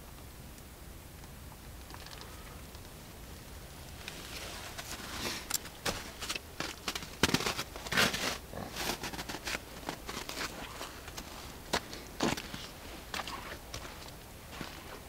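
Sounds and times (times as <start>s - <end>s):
footsteps crunching on snow: 4.0s - 15.0s.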